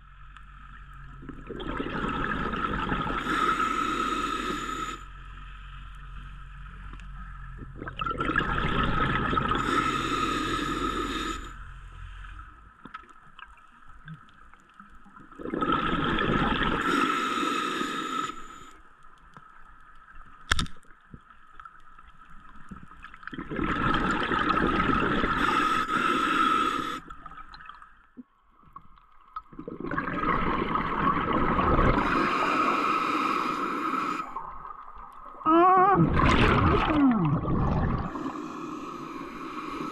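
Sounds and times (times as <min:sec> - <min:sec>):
rush of exhaled bubbles: 0:01.2 - 0:03.4, 0:07.8 - 0:09.7, 0:15.3 - 0:17.0, 0:23.2 - 0:25.6, 0:29.5 - 0:32.8, 0:34.2 - 0:38.4
diver breathing through regulator: 0:03.1 - 0:05.2, 0:09.5 - 0:11.8, 0:16.8 - 0:18.8, 0:25.3 - 0:27.1, 0:31.9 - 0:34.6, 0:37.2 - 0:39.9.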